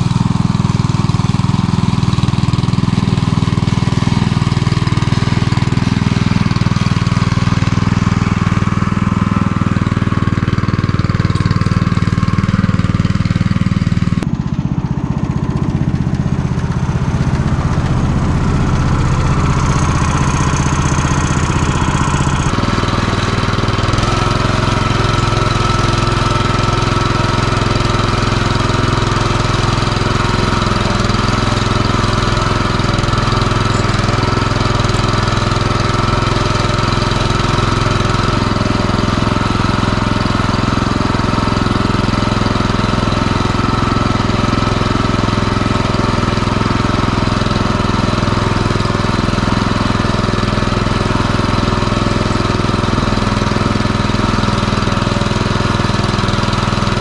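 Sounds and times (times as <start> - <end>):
walk-behind tractor engine running: 0.0 - 57.0.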